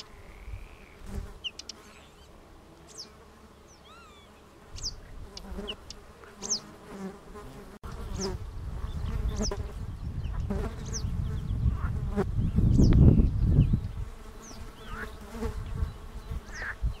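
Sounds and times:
bird alarm calls: 3.7s - 6.7s.

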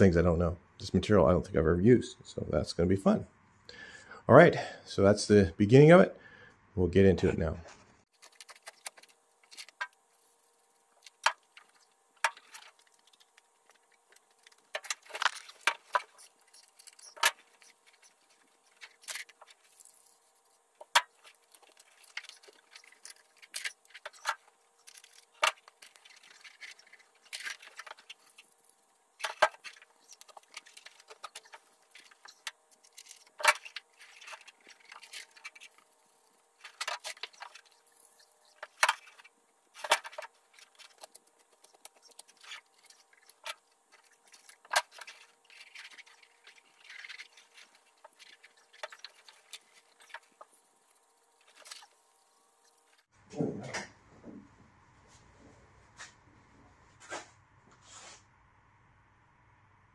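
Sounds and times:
faint steady hum: 0.0s - 59.9s
foil insulation crackling: 8.1s - 53.1s.

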